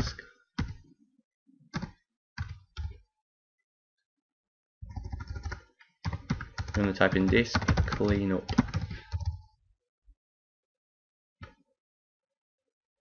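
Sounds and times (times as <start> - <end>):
laptop keyboard typing: 4.8 - 9.4.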